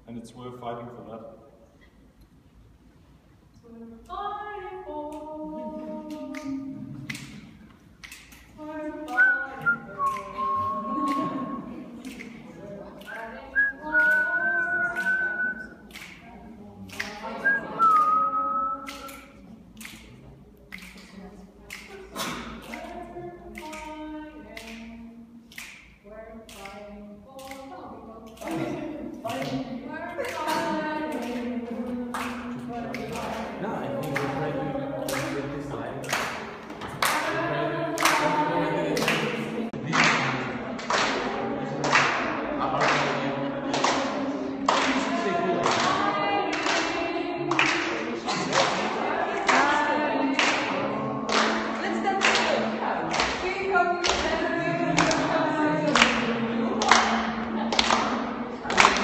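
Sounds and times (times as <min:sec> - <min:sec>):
group singing long held notes: 0:03.6 - 0:59.0
people whistling: 0:09.1 - 0:11.7, 0:13.6 - 0:15.8, 0:17.4 - 0:19.3
voices holding long notes: 0:37.0 - 0:40.8.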